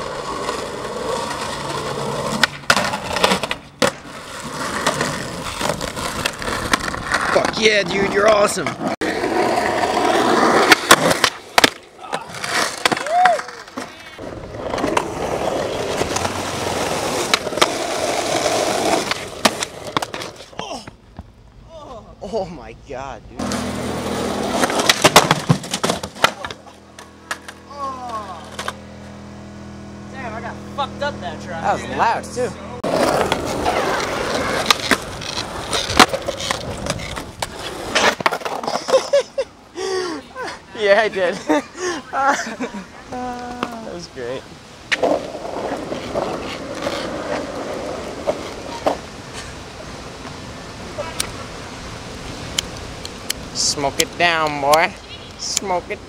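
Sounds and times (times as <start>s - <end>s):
skateboard clacks: 0.0s - 8.8s, 9.4s - 21.3s, 23.4s - 28.8s, 32.8s - 39.2s
skateboard wheels rolling on concrete: 0.0s - 56.0s
skateboard knocks: 24.6s - 27.6s.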